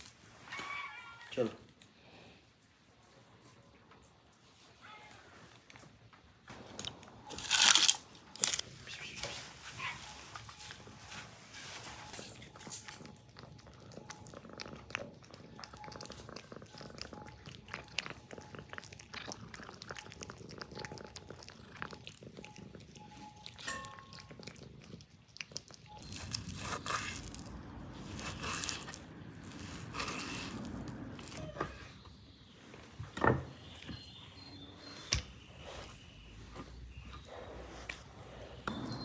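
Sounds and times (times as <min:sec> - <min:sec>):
cats eating from metal bowl: 0:05.9 - 0:32.3.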